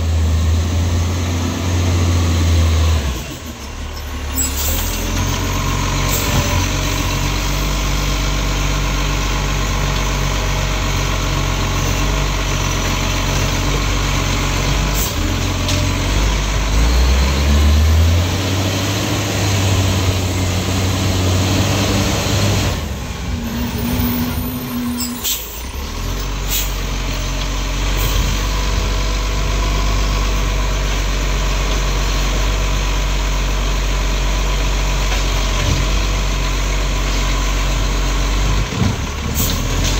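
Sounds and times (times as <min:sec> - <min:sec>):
diesel truck engine idling and revving: 0:00.0 - 0:39.9
air brakes hiss: 0:24.6 - 0:25.8, 0:26.4 - 0:26.9.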